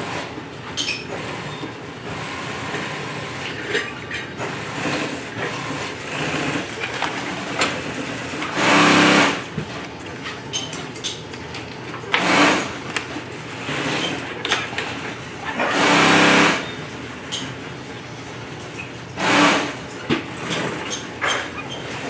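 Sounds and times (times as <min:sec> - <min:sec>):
sewing machine stitching: 0:04.4 - 0:09.5, 0:12.1 - 0:12.8, 0:13.6 - 0:14.8, 0:15.4 - 0:16.7, 0:19.2 - 0:19.8.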